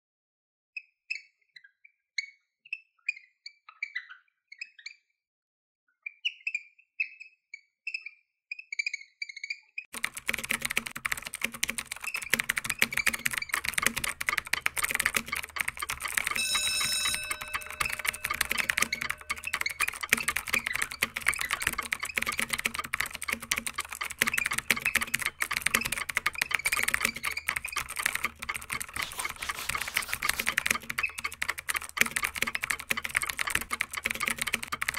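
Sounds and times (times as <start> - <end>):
marker squeaking on whiteboard: 7.9 - 34.9
keyboard typing: 9.9 - 34.9
short ringing tone: 16.4 - 19.8.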